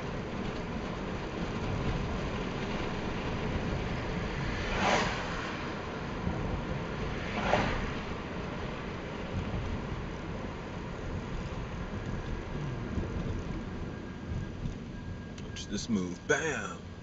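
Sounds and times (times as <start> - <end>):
road and engine noise inside car: 0.0 - 17.0
rushes of noise: 4.2 - 8.2.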